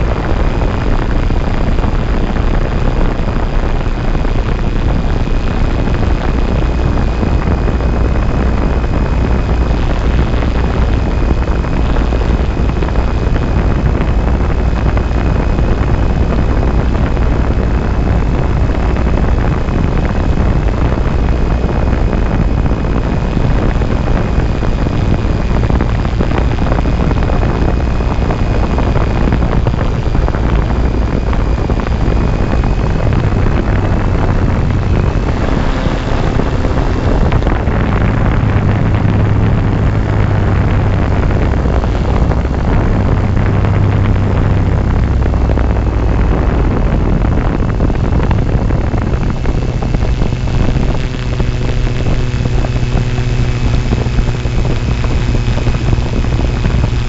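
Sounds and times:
wind buffeting microphone: 0:00.0 - 0:57.0
electric motors whining: 0:22.0 - 0:47.2.

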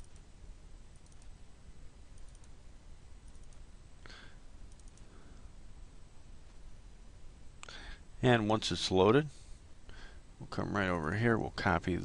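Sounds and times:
computer mouse clicks: 0:00.0 - 0:00.3, 0:01.0 - 0:01.3, 0:02.2 - 0:02.6, 0:03.2 - 0:03.6, 0:04.7 - 0:05.1
low steady background hum: 0:00.0 - 0:12.0.

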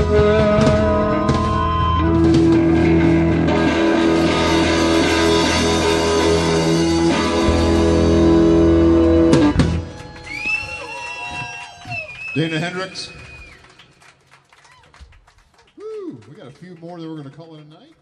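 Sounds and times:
live rock band final chord: 0:00.0 - 0:09.9.

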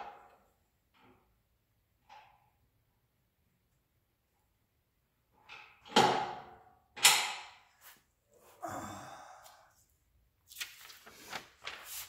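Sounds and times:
breathy exhale: 0:08.5 - 0:09.8.

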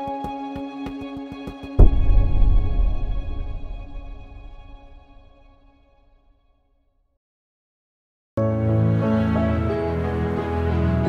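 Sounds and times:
soundtrack music with ticking beat: 0:00.0 - 0:04.1
deep bass boom: 0:01.8 - 0:05.5.

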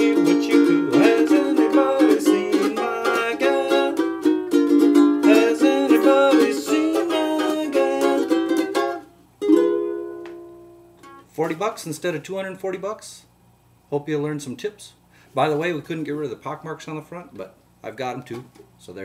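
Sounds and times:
ukulele strumming chords: 0:00.0 - 0:11.6.

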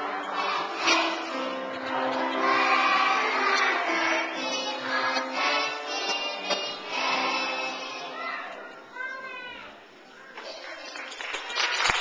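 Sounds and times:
children's choir singing: 0:00.0 - 0:08.9.

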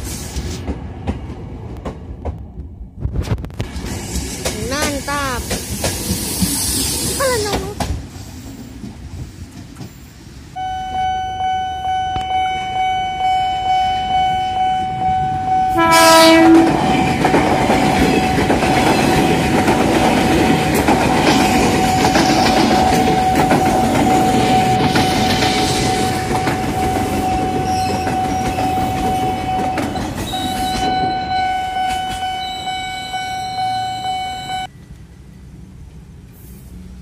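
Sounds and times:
train wheels clattering on rails: 0:00.0 - 0:10.1, 0:16.5 - 0:31.2
electric train whine: 0:03.7 - 0:37.0
train horn blast: 0:10.6 - 0:16.8.

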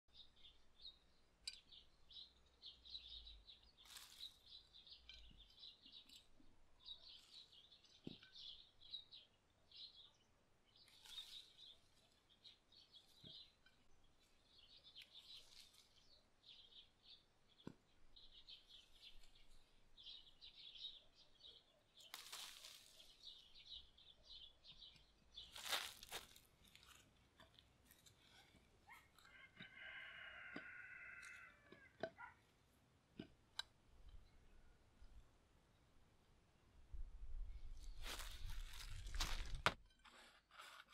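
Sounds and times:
faint bird chirping: 0:00.1 - 0:32.5
rustling: 0:03.8 - 0:04.7, 0:10.8 - 0:12.2, 0:14.2 - 0:16.1, 0:22.0 - 0:23.5, 0:25.5 - 0:28.7, 0:37.9 - 0:40.9.

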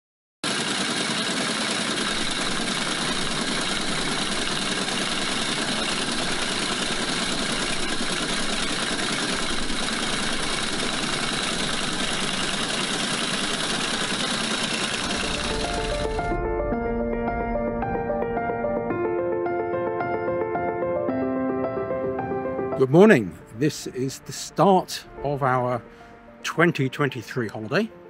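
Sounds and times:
engine droning steadily: 0:00.5 - 0:18.9.

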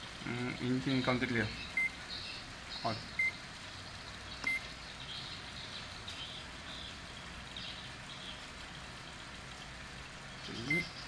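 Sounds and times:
faint high chirping: 0:10.4 - 0:11.0.

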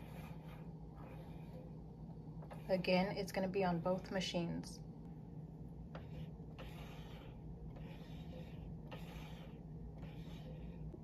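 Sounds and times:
soft breathing: 0:00.0 - 0:02.7
steady low hum: 0:00.0 - 0:11.0.

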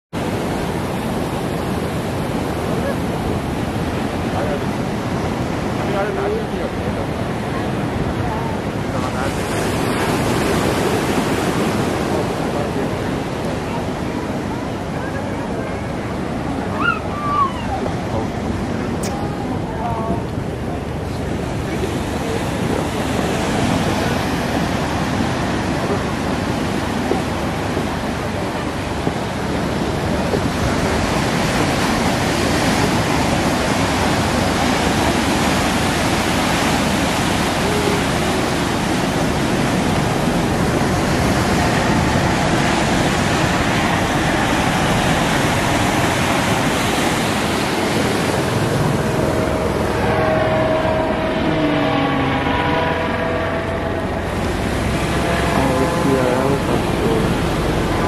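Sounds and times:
ocean surf breaking: 0:00.1 - 0:58.0
wind buffeting microphone: 0:00.1 - 0:58.0
helicopter passing overhead: 0:38.0 - 0:58.0.

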